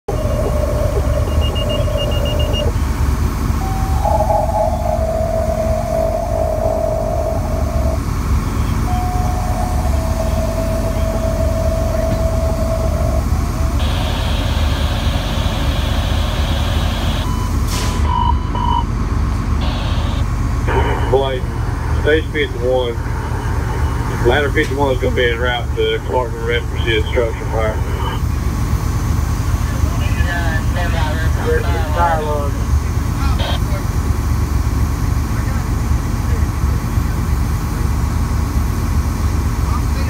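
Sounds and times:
vehicle engine idling: 0:00.0 - 0:40.0
short beeps: 0:00.1 - 0:02.8, 0:03.6 - 0:18.9, 0:19.6 - 0:21.2
two-tone pager alert tones: 0:00.1 - 0:02.8, 0:03.6 - 0:08.0, 0:08.8 - 0:15.0
harsh buzzing tone: 0:00.1 - 0:17.3, 0:19.6 - 0:21.0.

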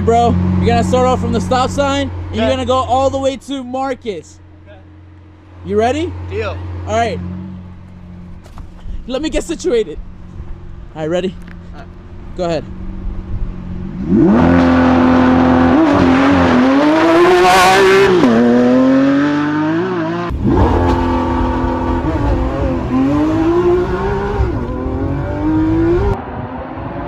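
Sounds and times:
sports car engine accelerating: 0:00.0 - 0:27.0.

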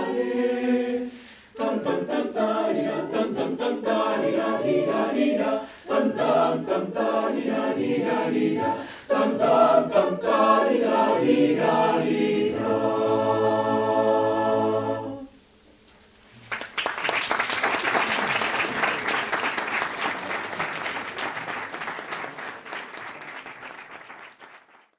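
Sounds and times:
choir singing a cappella: 0:00.0 - 0:15.4
audience applauding: 0:16.4 - 0:24.9.

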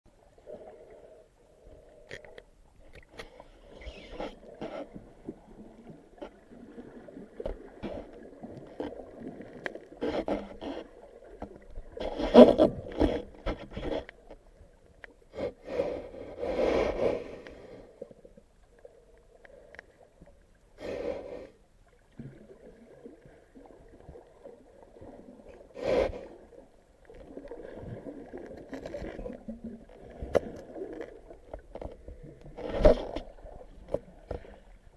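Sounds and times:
spear tip scraping rock and sand: 0:03.2 - 0:05.0, 0:10.0 - 0:10.9, 0:12.0 - 0:14.1.

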